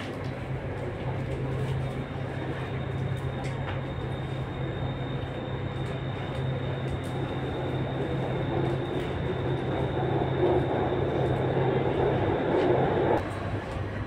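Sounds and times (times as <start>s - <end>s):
train car humming: 0.0s - 14.0s
wheel and rail noise: 0.0s - 14.0s.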